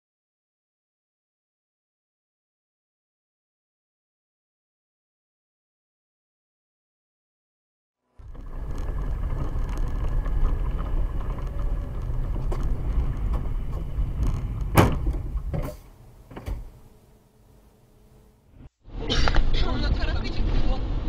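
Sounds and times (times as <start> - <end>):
car engine and tyre rumble: 8.1 - 18.4.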